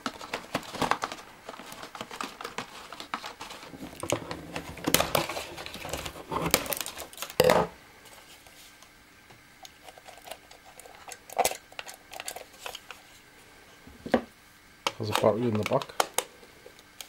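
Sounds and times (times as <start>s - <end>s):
cardboard rustling and scraping: 0.0s - 7.3s.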